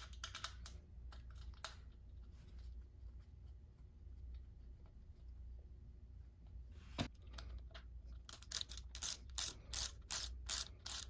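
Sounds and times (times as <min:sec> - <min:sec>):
ratchet wrench clicking: 0:08.3 - 0:11.0.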